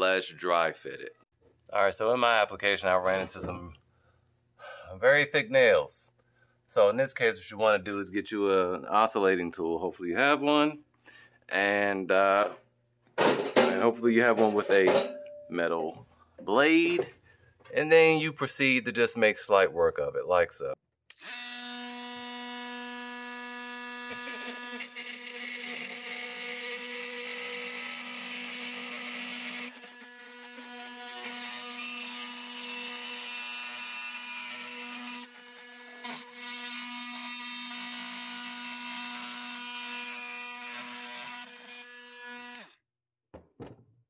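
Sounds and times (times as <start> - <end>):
oscillating multi-tool cutting nails: 21.1 - 42.8.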